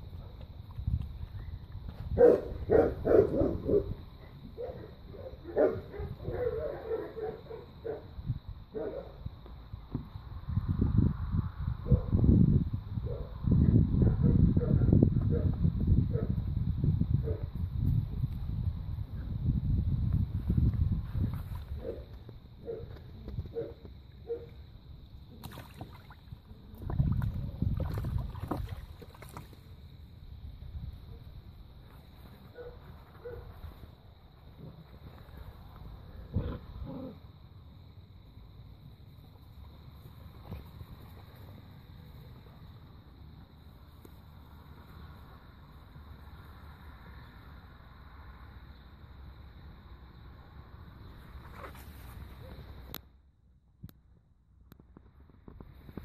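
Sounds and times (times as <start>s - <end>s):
puppy splashing in water: 25.3s - 29.8s.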